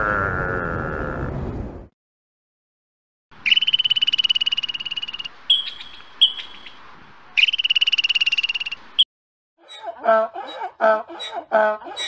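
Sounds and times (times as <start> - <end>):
squirrel chirps: 3.4 - 6.8, 7.4 - 9.0
squirrel chattering trill: 3.5 - 6.8, 7.4 - 8.8.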